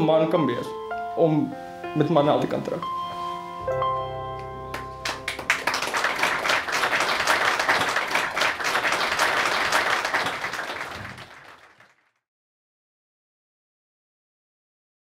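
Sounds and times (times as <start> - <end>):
audience applauding: 4.7 - 12.1.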